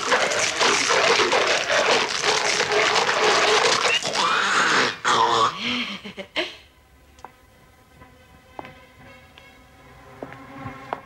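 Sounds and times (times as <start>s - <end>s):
wet splattering gore: 0.0s - 4.4s
zombie snarling and grunting: 0.0s - 5.6s.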